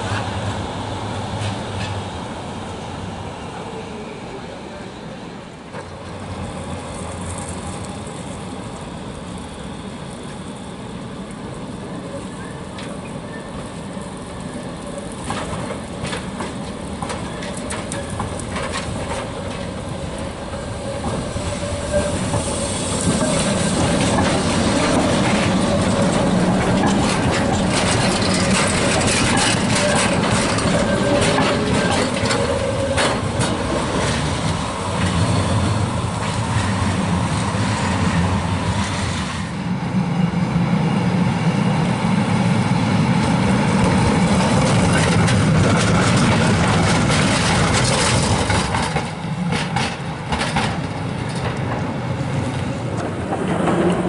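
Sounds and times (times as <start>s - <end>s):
tram wheels clattering over rails: 0.0s - 2.8s, 4.8s - 39.8s, 40.6s - 54.0s
wavering whine from wheels: 6.3s - 16.2s.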